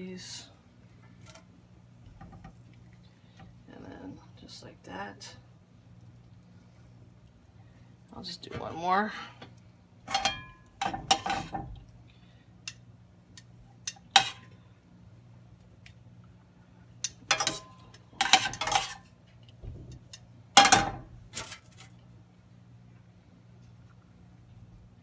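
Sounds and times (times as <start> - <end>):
faint low hum: 0.0 - 25.0
metal utensil scraping pan: 10.1 - 11.7, 13.9 - 14.5, 17.3 - 19.1.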